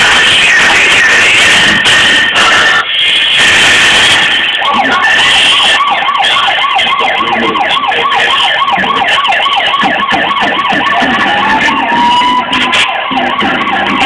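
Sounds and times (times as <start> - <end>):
siren wailing: 0.0 - 14.0.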